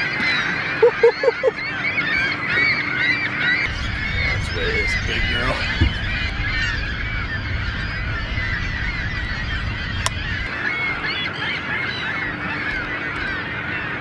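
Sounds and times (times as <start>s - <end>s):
flock of waterbirds calling: 0.0s - 14.0s
low rumble: 3.5s - 12.9s.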